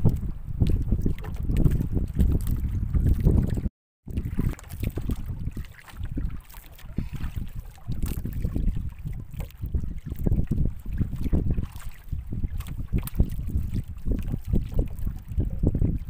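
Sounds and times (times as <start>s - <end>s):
short splashes: 0.0s - 15.1s
water slapping against canoe: 0.0s - 16.0s
wind buffeting microphone: 0.0s - 16.0s.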